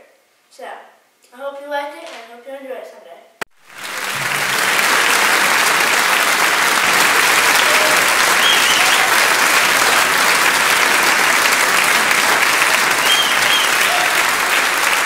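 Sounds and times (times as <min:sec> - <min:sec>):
audience applauding: 0:03.5 - 0:15.0.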